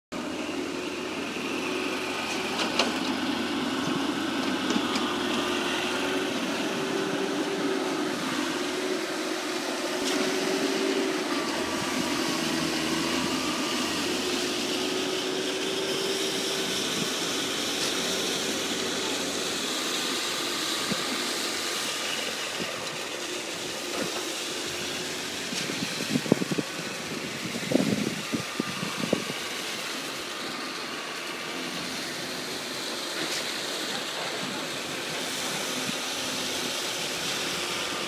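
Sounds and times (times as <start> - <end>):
heavy machinery engine droning: 0.1 - 38.0.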